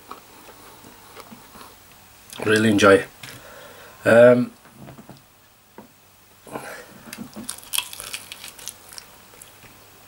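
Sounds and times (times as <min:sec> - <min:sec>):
person chewing: 0:06.9 - 0:09.8.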